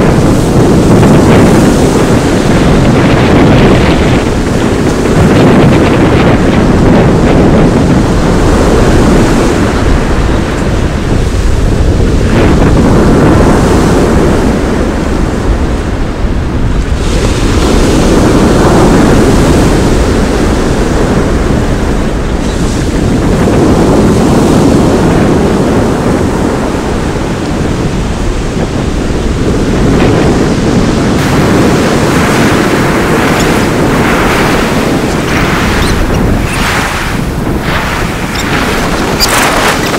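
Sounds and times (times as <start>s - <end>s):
wind buffeting microphone: 0.0s - 39.9s
waves breaking on shingle beach: 29.5s - 39.9s.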